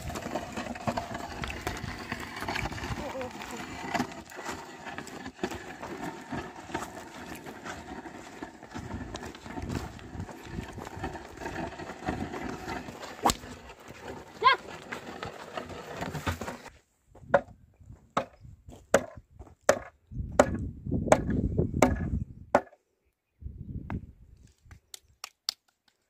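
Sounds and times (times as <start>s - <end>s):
hooves and plough scraping soil: 0.0s - 19.7s.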